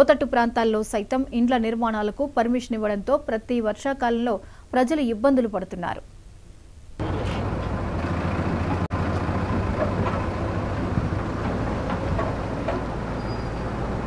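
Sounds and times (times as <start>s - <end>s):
diesel engine running: 7.0s - 14.0s.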